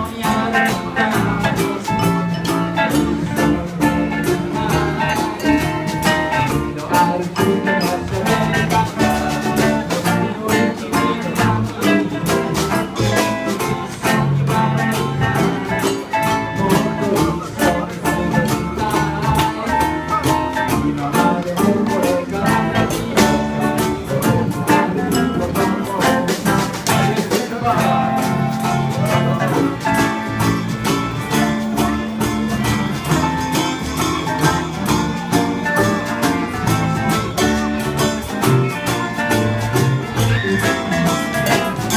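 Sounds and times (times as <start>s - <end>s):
guitar strummed: 0.0s - 41.9s
hand percussion: 0.0s - 41.9s
ukuleles strummed: 0.0s - 41.9s
upright bass: 0.0s - 41.9s.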